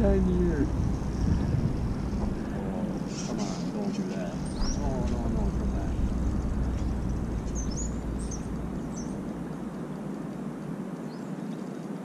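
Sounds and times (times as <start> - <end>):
low rumble: 0.0 - 11.2
high bird chirps: 4.3 - 5.0, 6.0 - 9.4.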